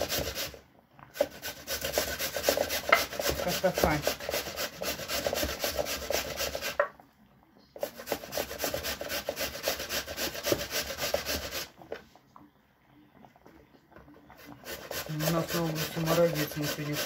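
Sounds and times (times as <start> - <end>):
potato grated on grater: 0.0 - 6.8, 7.8 - 11.7, 14.3 - 17.0.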